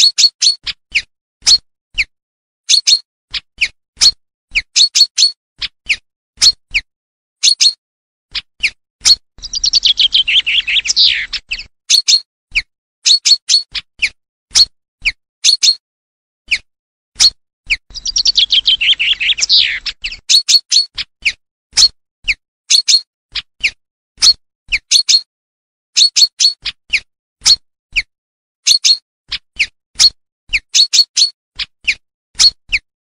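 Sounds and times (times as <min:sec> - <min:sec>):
chaffinch song: 0:00.0 - 0:02.1, 0:02.7 - 0:15.8, 0:16.5 - 0:25.3, 0:26.0 - 0:32.9
sharp bird call notes: 0:09.5 - 0:11.5, 0:17.9 - 0:20.1.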